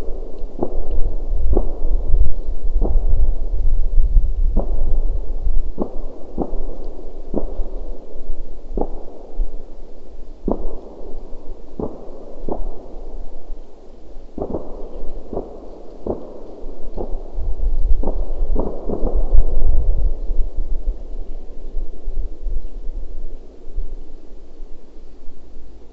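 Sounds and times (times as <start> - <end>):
low rumble: 0.8 - 5.9
distant fireworks bangs: 18.0 - 19.7.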